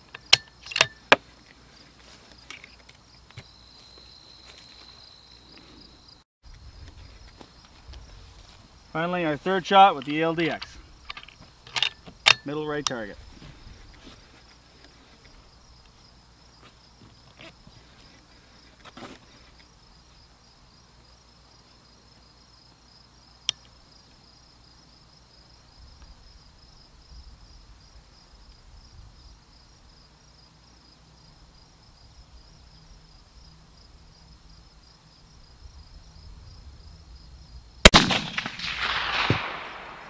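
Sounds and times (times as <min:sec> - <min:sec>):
rifle shot with echo: 0:37.8 - 0:40.0.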